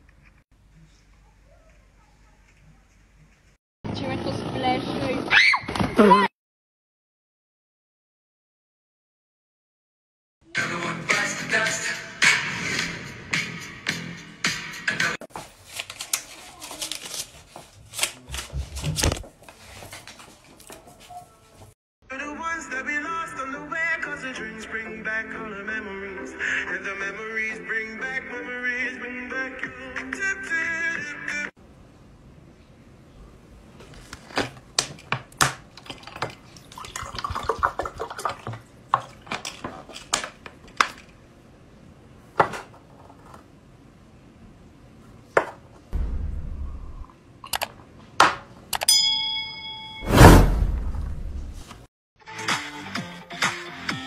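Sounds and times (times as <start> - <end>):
water pouring into a glass: 35.8 - 38.6
heavy low thump: 46.0 - 47.1, 50.1 - 51.6.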